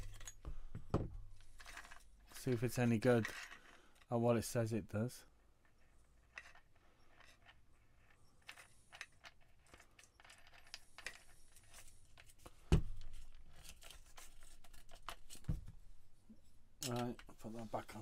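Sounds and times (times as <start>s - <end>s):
clicks and metallic rattles: 0.0s - 4.2s, 16.8s - 17.3s.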